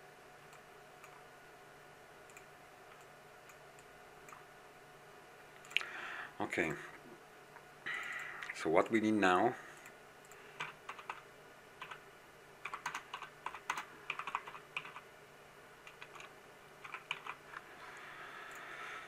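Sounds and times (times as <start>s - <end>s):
keyboard typing: 10.3s - 11.2s, 11.8s - 12.0s, 12.6s - 15.0s, 15.8s - 17.6s.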